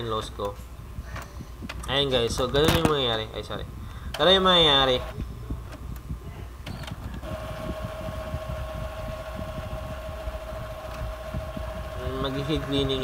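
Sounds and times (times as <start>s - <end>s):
printer motor whine: 6.7s - 13.0s.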